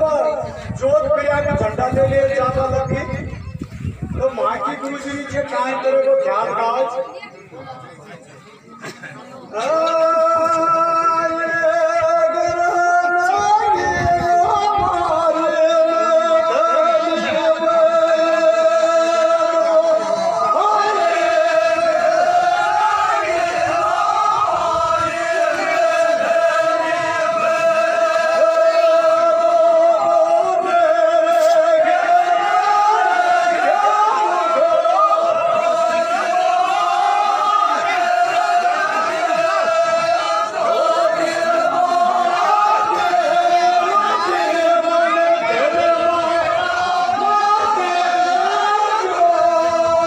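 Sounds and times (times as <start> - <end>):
man folk singing: 24.8 - 50.0.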